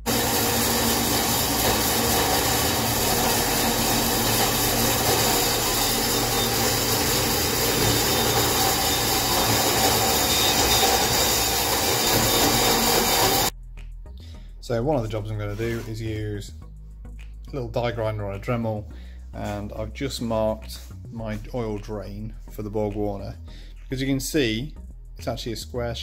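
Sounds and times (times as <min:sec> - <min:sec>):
bandsaw cutting metal pipe: 0:00.0 - 0:13.5
saw motor hum: 0:00.0 - 0:13.5.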